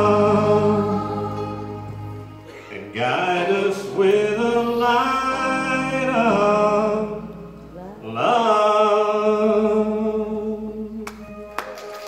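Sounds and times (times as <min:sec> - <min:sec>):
man singing into a microphone: 0:00.0 - 0:01.5, 0:02.7 - 0:07.4, 0:08.0 - 0:11.0.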